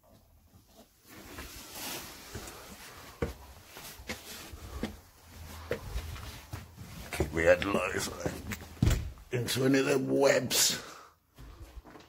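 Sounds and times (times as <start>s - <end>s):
rustling: 0.5s - 8.8s
scuffing footsteps: 2.3s - 9.2s.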